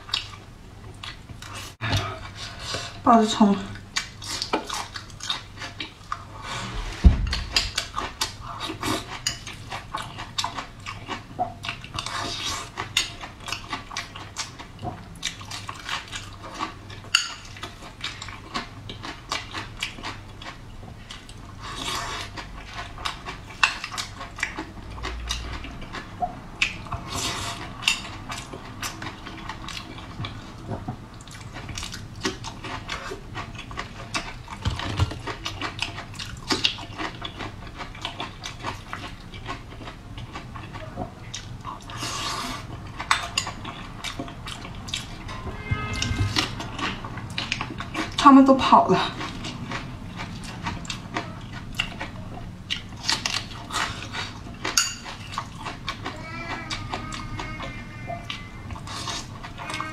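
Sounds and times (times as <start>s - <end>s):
dull thump: 6.9s - 7.6s
spoon clinking against glass bowl: 54.8s - 55.1s.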